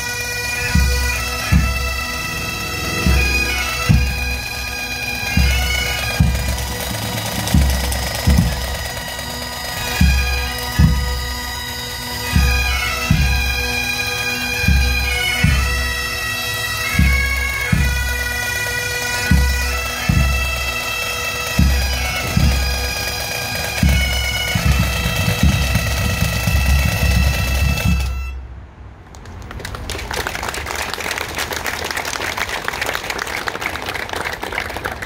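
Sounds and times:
bagpipes playing slow tune: 0.0s - 28.4s.

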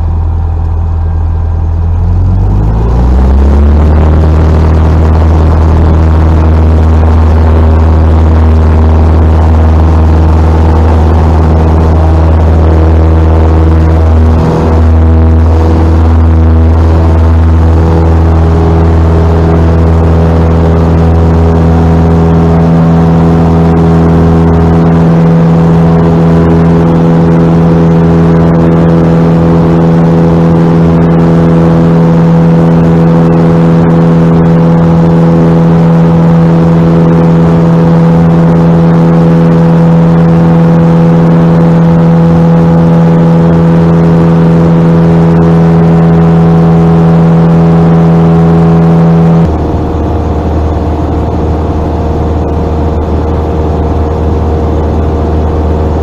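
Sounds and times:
small plane engine and propeller: 0.0s - 56.0s.

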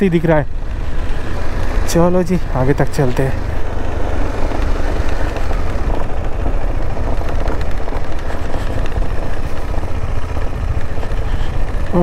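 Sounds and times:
motorcycle engine running: 0.0s - 12.0s
wind rumble on microphone: 3.4s - 12.0s.

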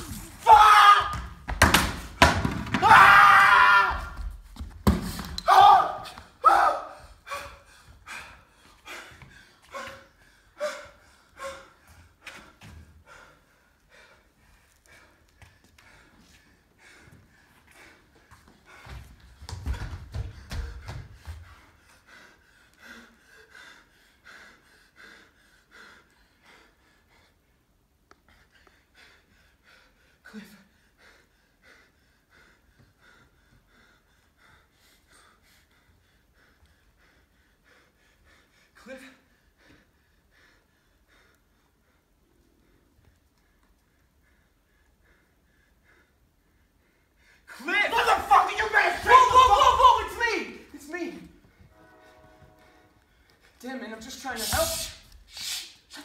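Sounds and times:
man panting for breath: 7.0s - 19.4s, 20.2s - 27.6s, 28.2s - 47.5s.

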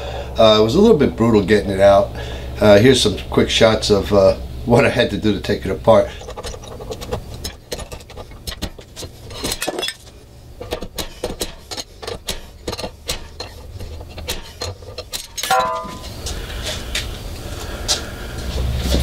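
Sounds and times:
low steady hum: 0.0s - 19.0s
metal clanks and clinks: 6.2s - 16.2s.

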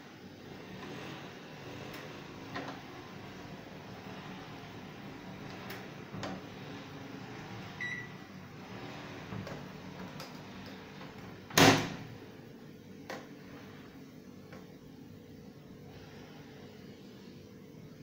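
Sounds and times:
microwave keypad beep: 7.8s - 8.2s.

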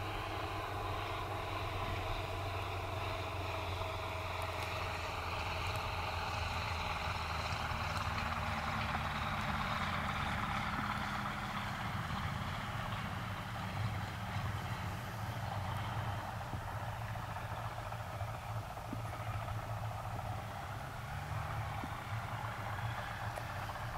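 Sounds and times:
light aircraft engine near idle: 0.0s - 23.9s.

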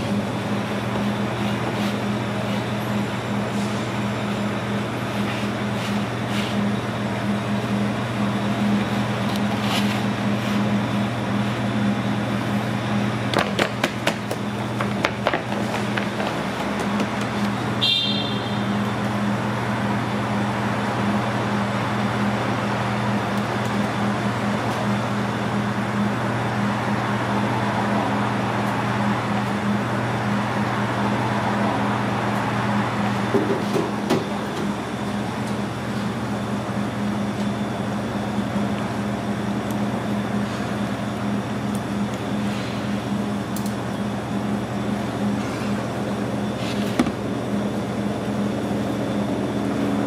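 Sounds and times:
low machine hum: 0.0s - 50.0s.

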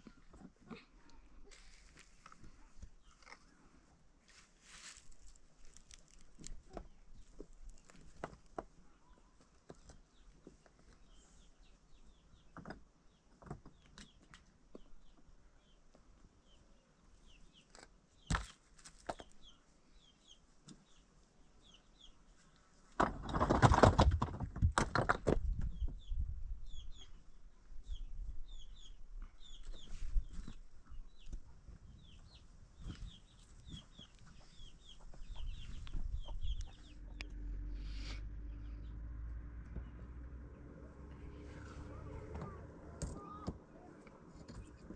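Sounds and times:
rocks clattering: 23.0s - 25.5s
bird chirping: 25.6s - 44.9s.

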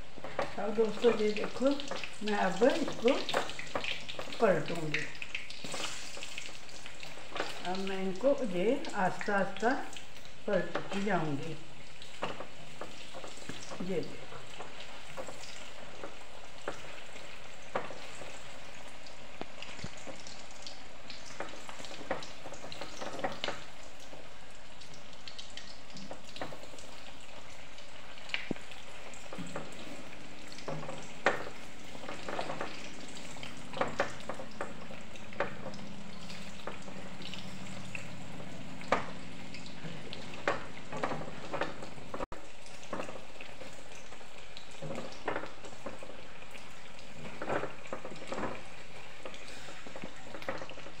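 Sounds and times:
deep-frying sizzle: 0.0s - 51.0s.

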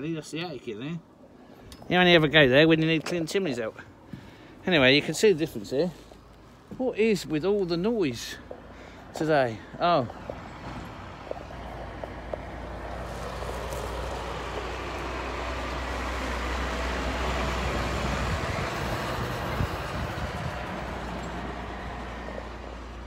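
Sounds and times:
dump truck diesel engine rumble: 7.0s - 23.0s.

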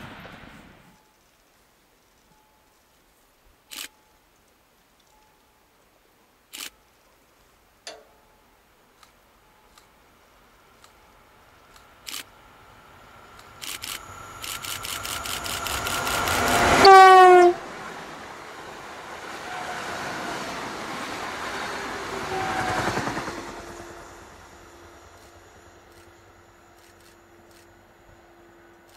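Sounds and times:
train passing with wheel clatter: 0.0s - 1.5s, 7.9s - 28.9s
train horn blast: 15.9s - 20.5s, 21.7s - 25.4s.

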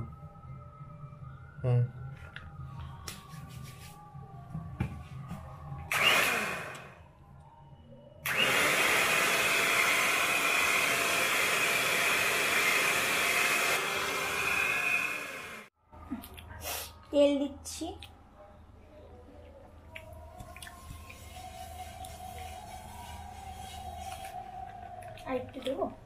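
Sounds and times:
electric hand mixer beating batter: 5.9s - 6.9s, 8.3s - 15.7s.

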